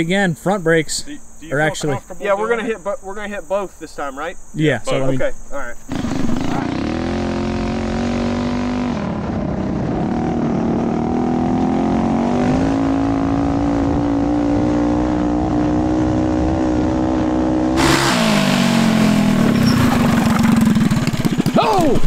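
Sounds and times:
mini bike engine at full throttle: 5.9s - 22.0s
loud rushing hiss: 17.8s - 21.0s.

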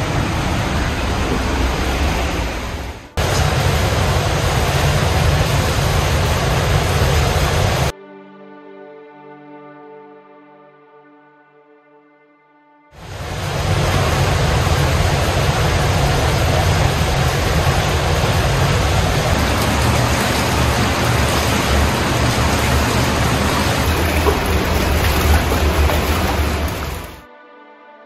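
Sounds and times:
rushing water with deep rumble: 0.0s - 7.9s, 13.0s - 27.2s.

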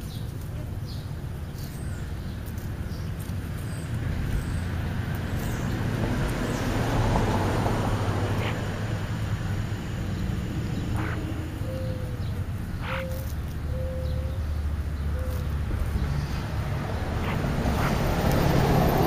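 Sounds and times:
car driving past: 4.4s - 11.6s, 15.8s - 19.0s.

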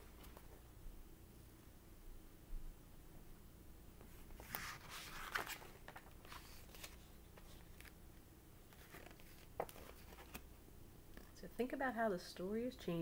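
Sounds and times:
book pages rustling: 0.0s - 0.6s, 4.0s - 8.0s, 8.7s - 10.5s
light clicks of book handling: 4.0s - 8.0s, 8.7s - 10.5s.

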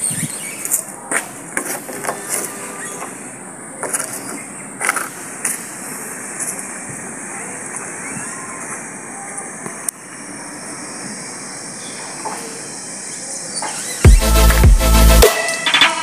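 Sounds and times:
high hiss: 5.2s - 16.0s.

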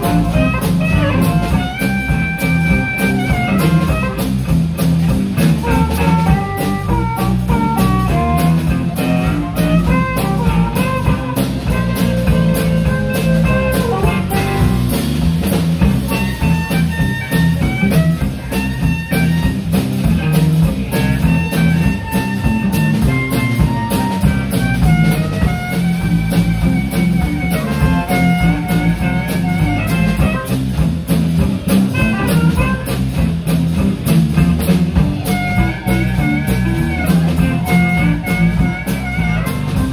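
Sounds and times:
harmonica: 0.0s - 4.6s, 5.4s - 15.0s, 20.7s - 30.9s, 31.7s - 33.2s, 34.4s - 39.9s
blues band playing: 0.0s - 39.9s.

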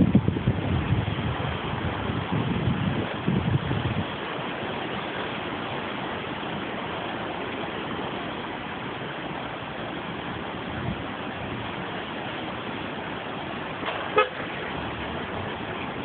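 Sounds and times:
river rushing: 0.0s - 16.0s
car horn toot: 13.9s - 14.6s.

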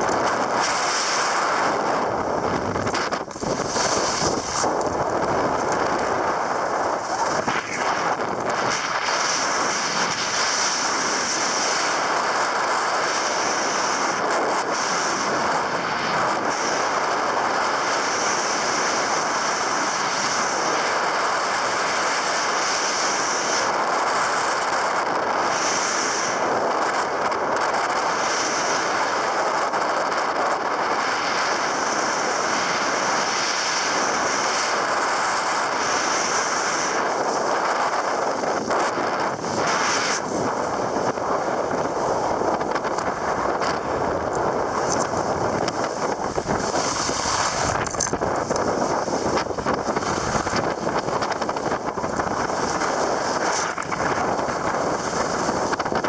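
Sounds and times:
ski edge scraping: 0.0s - 19.0s, 31.3s - 56.0s
skis hissing over snow: 0.0s - 56.0s.

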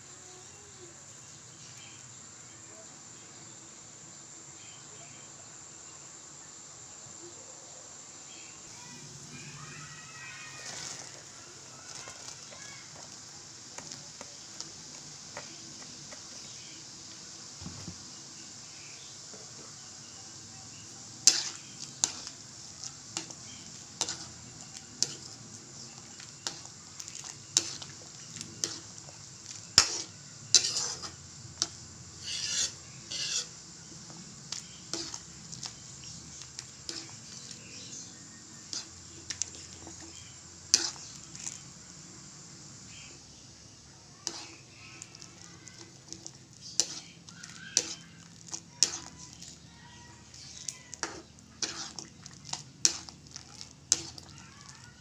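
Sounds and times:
food sizzling: 5.4s - 55.0s
utensil scraping a pan: 21.2s - 33.6s, 34.5s - 35.2s, 36.6s - 38.0s, 38.6s - 41.1s, 44.2s - 44.6s, 46.6s - 48.2s, 48.8s - 49.6s, 50.3s - 53.2s.

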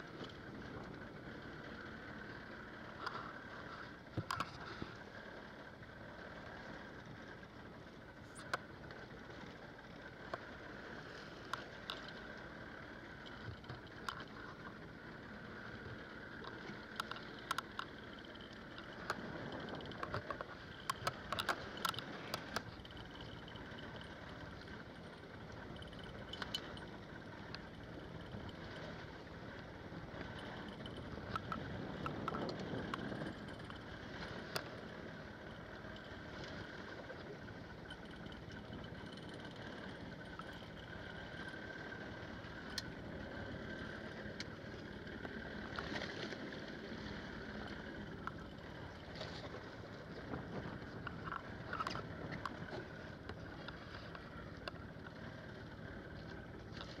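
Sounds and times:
fishing boat hum: 0.0s - 57.0s
water slapping hull: 7.9s - 57.0s
sharp clicks: 16.4s - 24.1s.

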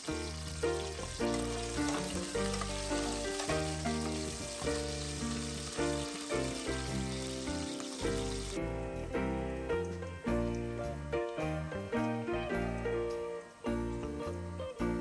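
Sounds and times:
onions sizzling in oil: 0.0s - 8.6s.

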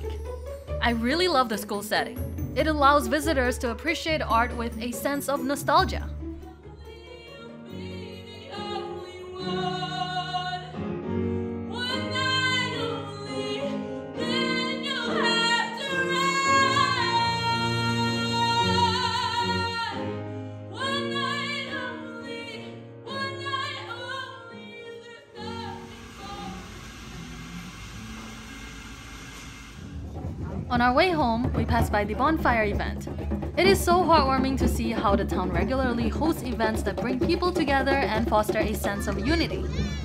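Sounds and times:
woman singing: 2.6s - 10.8s, 11.7s - 26.7s, 33.6s - 39.9s.

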